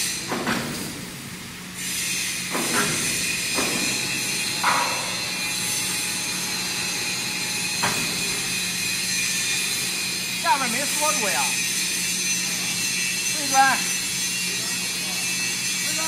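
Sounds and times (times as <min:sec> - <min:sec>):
overhead crane hiss and hum: 0:00.0 - 0:16.0.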